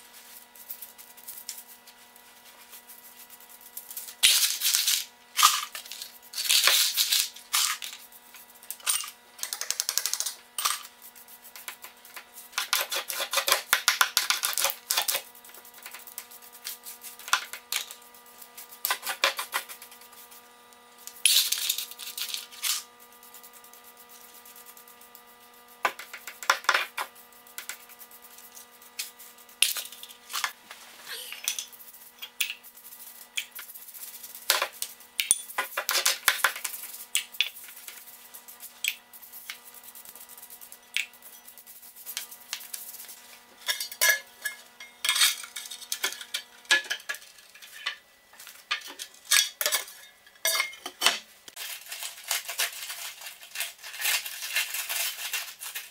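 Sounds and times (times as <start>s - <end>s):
debris scraped across floor: 51.5s - 55.9s.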